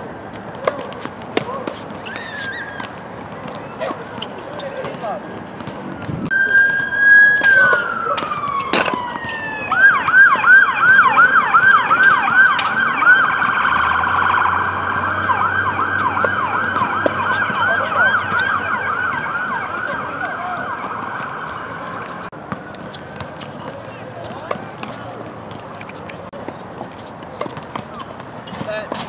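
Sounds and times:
emergency vehicle siren: 0:06.0 - 0:22.3.

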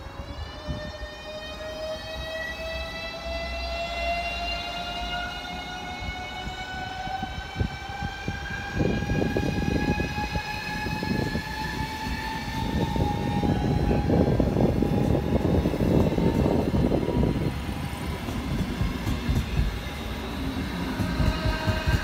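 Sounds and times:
electric train motor whine: 0:00.3 - 0:22.0
train wheels clattering on rails: 0:14.6 - 0:22.0.

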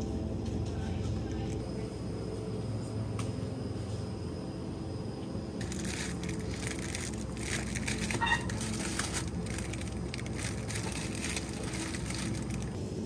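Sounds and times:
low background hum: 0:00.0 - 0:13.0
plastic packaging crinkling: 0:05.6 - 0:12.8.

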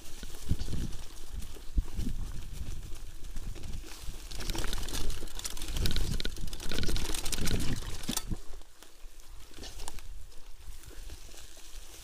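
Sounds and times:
mountain bike rattling over bumps: 0:00.0 - 0:08.7
tyre noise on dirt: 0:00.0 - 0:12.0.

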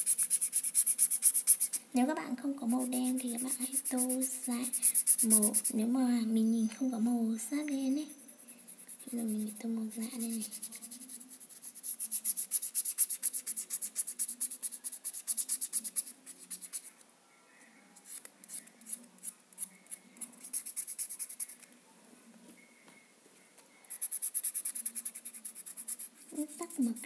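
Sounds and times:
marker scribbling on paper: 0:00.0 - 0:01.8, 0:02.6 - 0:06.0, 0:07.6 - 0:16.9, 0:18.0 - 0:21.7, 0:23.8 - 0:27.0.

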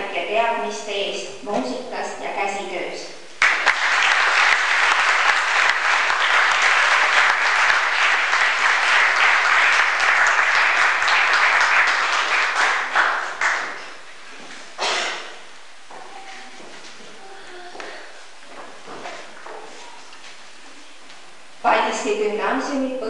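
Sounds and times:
audience applauding: 0:03.4 - 0:14.0.

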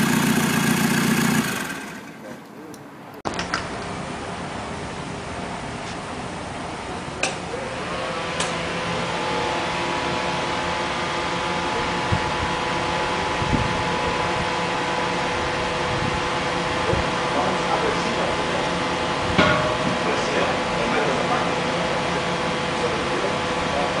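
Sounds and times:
diesel engine running: 0:00.0 - 0:02.4, 0:07.4 - 0:24.0.

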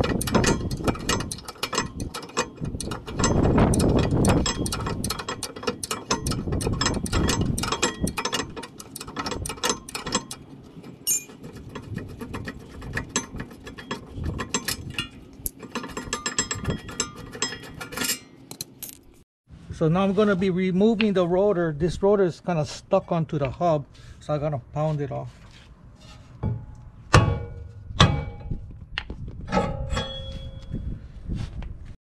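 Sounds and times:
ratcheting wrench clicking: 0:00.0 - 0:10.4.

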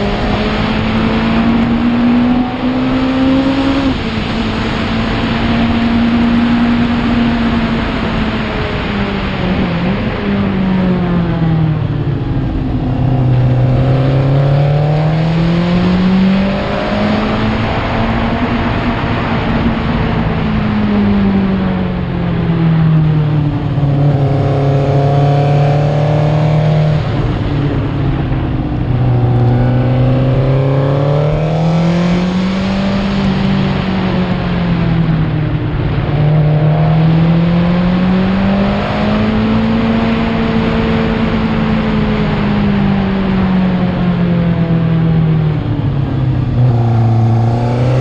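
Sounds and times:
racing sidecar engine: 0:00.0 - 0:48.0.

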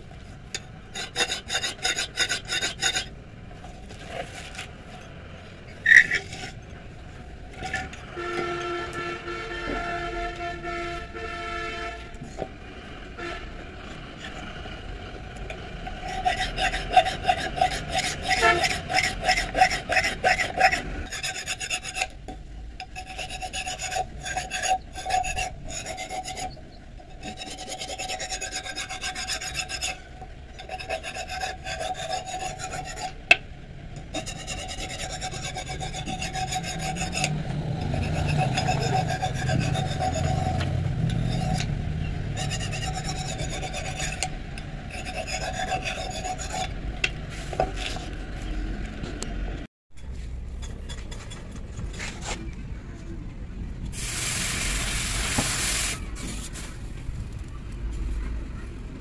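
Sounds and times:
file scraping steel blade: 0:00.5 - 0:03.1, 0:05.7 - 0:06.8, 0:07.5 - 0:09.1, 0:15.8 - 0:22.2, 0:22.8 - 0:33.4, 0:34.0 - 0:48.2.

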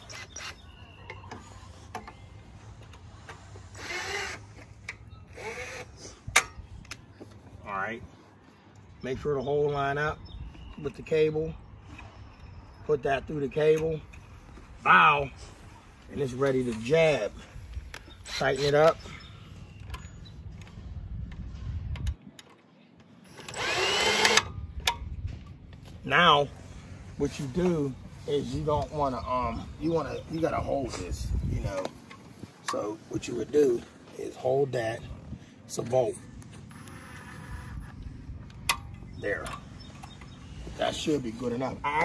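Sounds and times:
cordless drill whining: 0:03.7 - 0:06.0, 0:23.3 - 0:24.5.

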